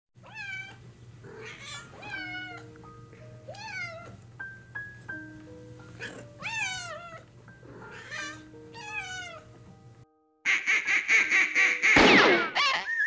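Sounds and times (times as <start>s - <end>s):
cat meowing: 0.2s - 2.7s, 3.5s - 4.2s, 6.0s - 9.5s
soft background music: 0.3s - 12.5s.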